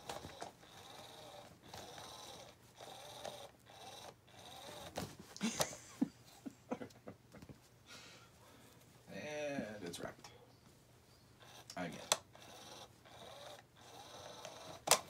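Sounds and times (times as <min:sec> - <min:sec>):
small electric motor whirring: 0:00.0 - 0:05.0, 0:11.4 - 0:15.0.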